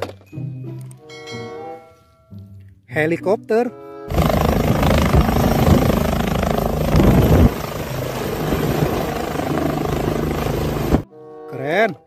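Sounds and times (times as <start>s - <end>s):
helicopter rotor and engine: 4.1s - 11.0s.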